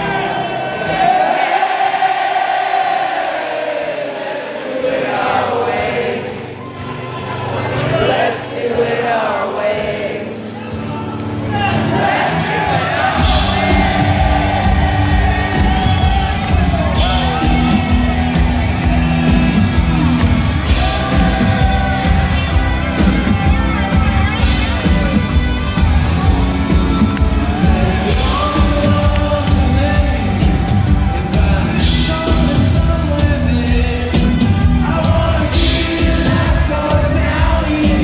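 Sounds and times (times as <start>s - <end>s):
rock band with electric guitars: 5.7s - 38.0s
crowd whooping: 6.3s - 8.4s, 10.7s - 32.6s
person singing: 26.7s - 38.0s.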